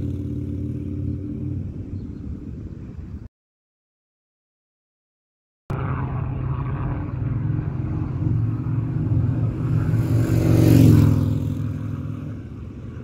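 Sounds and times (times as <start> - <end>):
motorcycle riding past: 0.0 - 3.0, 5.7 - 13.0.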